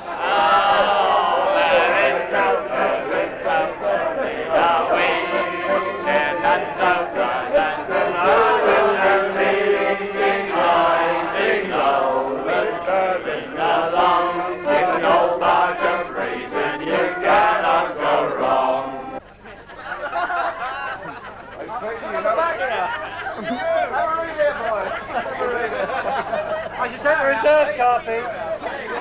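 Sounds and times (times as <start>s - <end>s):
men singing in chorus: 0.0s - 19.2s.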